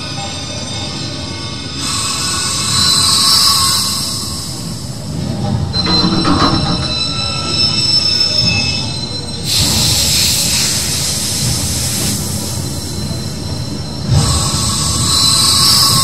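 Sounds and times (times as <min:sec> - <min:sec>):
metallic squealing machinery: 0:05.1 - 0:07.8.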